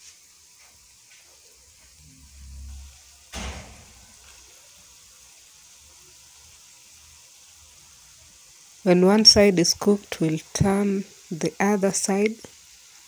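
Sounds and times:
oil sizzling: 0.0 - 13.0
low rumble: 1.9 - 4.4
sharp knock: 3.3 - 4.0.

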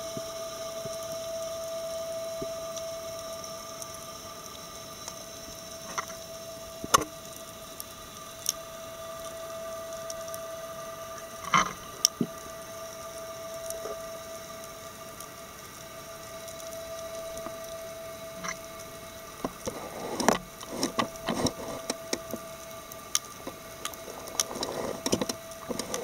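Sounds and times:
underwater hum: 0.0 - 26.0
underwater clicks and knocks: 24.4 - 26.0.

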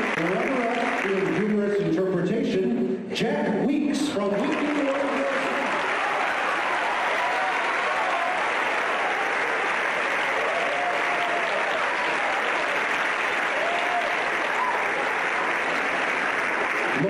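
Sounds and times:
audience applauding: 0.0 - 1.8, 4.2 - 17.0
cheers: 4.4 - 17.0.

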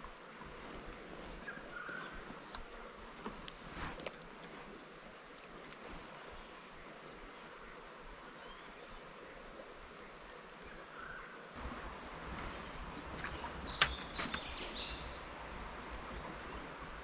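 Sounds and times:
soft steady hiss: 0.0 - 17.0.

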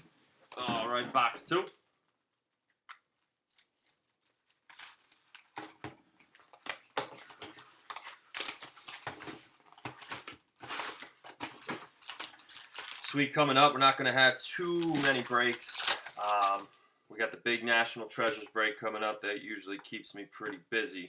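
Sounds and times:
plastic wrap crinkling and tearing: 3.5 - 16.8.

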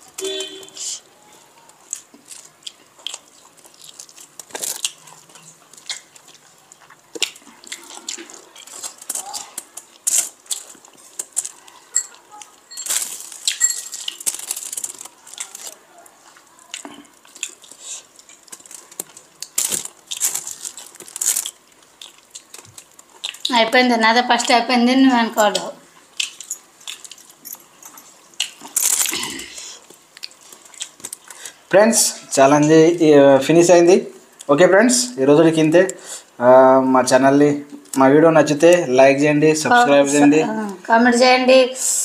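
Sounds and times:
aluminium foil crinkling: 0.0 - 31.7.

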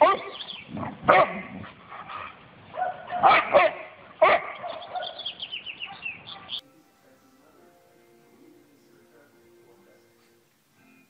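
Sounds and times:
dog barking: 0.0 - 6.6.

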